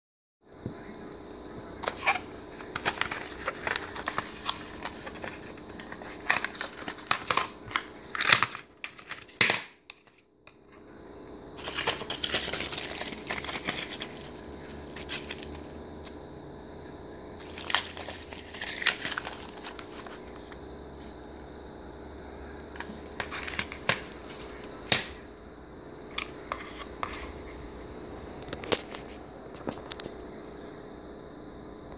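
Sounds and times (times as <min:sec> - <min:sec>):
packaging crinkling and clicking: 0:01.8 - 0:10.1, 0:11.6 - 0:14.2, 0:17.4 - 0:20.2.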